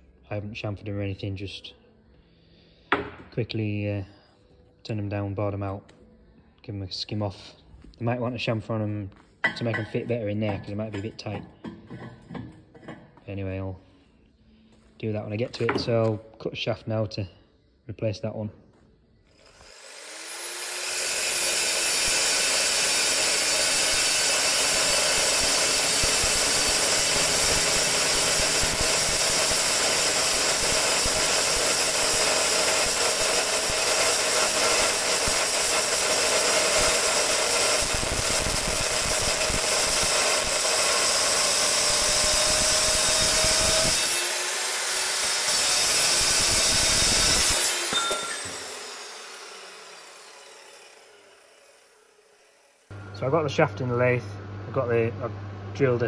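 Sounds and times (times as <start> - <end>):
chop saw cutting steel: 19.3 - 52.9.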